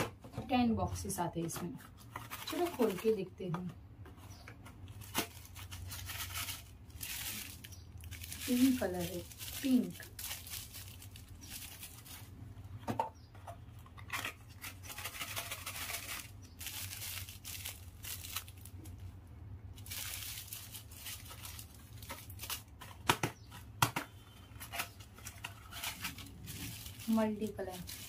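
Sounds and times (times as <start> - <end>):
plastic packet crinkling: 2.0 - 3.3, 4.8 - 12.4, 14.0 - 23.1, 24.6 - 28.0.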